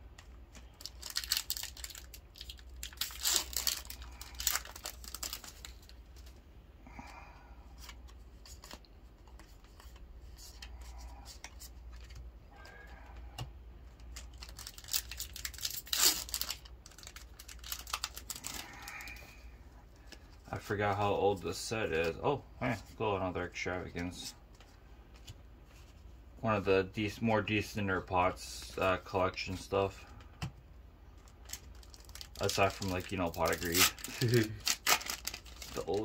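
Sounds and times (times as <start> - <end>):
cards rustling: 0.1 - 6.4, 7.7 - 19.4, 31.1 - 36.0
foil wrapper crinkling and tearing: 0.6 - 6.0, 14.1 - 19.3, 31.2 - 36.0.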